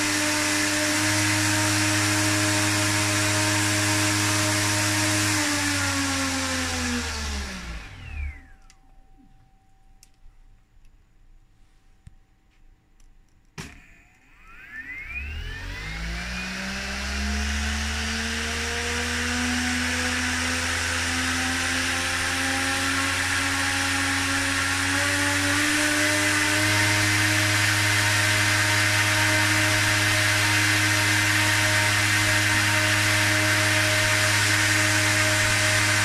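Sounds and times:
electric motor whine: 0.0s - 8.8s, 13.6s - 36.0s
click: 8.6s - 9.4s, 10.0s - 11.0s, 12.0s - 14.3s.

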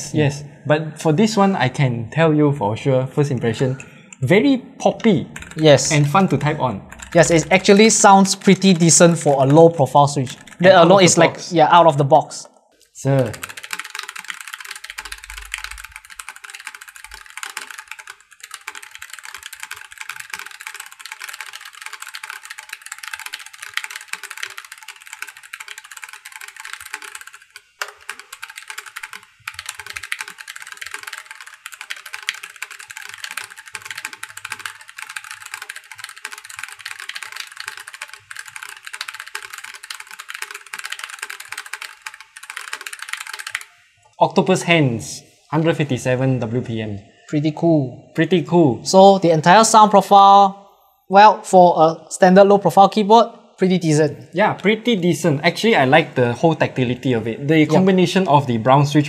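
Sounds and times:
fast typing on mechanical keyboard: 5.4s - 11.4s, 13.0s - 43.8s.

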